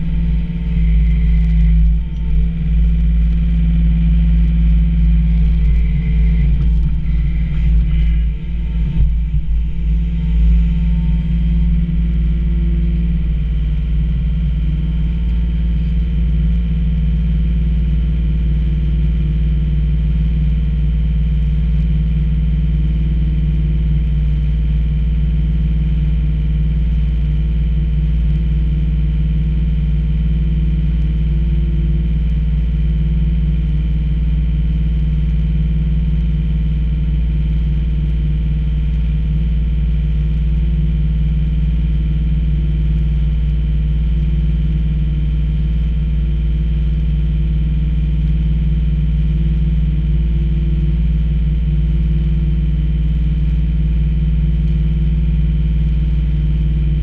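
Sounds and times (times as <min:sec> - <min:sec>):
diesel engine idling: 0:00.0 - 0:16.1.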